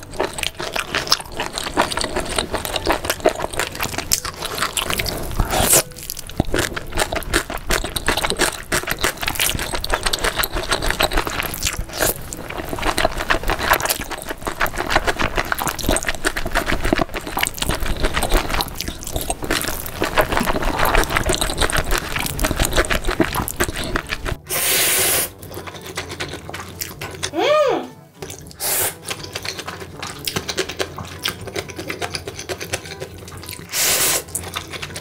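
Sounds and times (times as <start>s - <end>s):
wet chewing and crunching: 0.0s - 27.3s, 28.2s - 35.0s.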